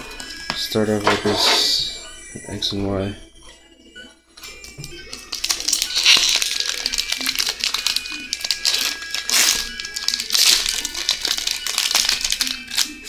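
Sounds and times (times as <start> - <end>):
foil wrapper crinkling: 4.4 - 13.0.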